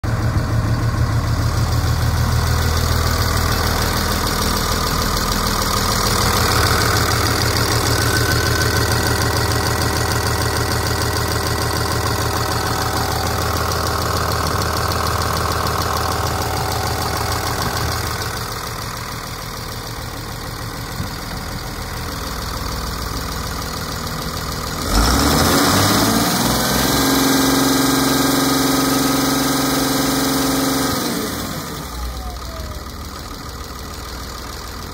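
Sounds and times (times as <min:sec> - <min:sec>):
diesel engine idling: 0:00.0 - 0:34.9
engine revving higher: 0:24.8 - 0:31.9.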